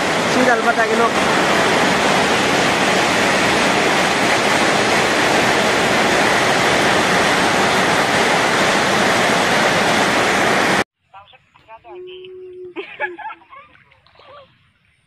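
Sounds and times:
rushing water: 0:00.0 - 0:10.8, 0:12.8 - 0:15.0.

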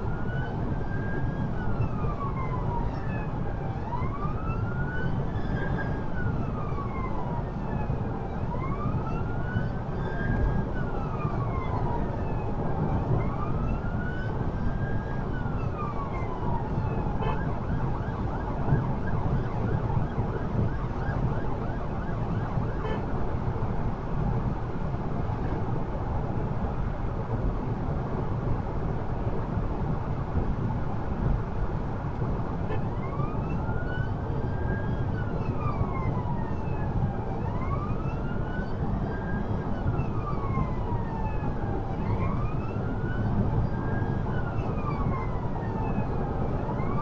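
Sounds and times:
siren wailing: 0:00.0 - 0:23.1, 0:32.7 - 0:47.0.

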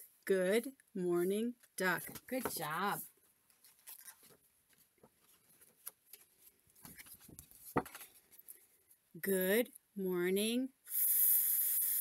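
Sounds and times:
book pages rustling: 0:02.1 - 0:08.8.

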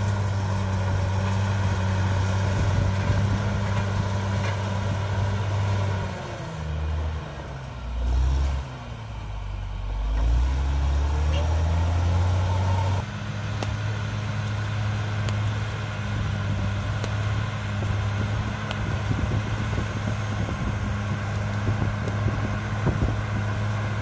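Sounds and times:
bulldozer diesel engine running: 0:00.0 - 0:24.0.

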